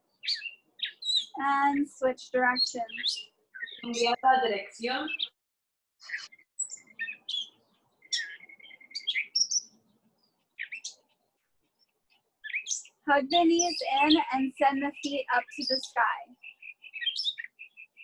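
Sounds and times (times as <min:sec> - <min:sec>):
songbirds chirping and whistling: 0:00.0 - 0:05.4, 0:06.0 - 0:18.0.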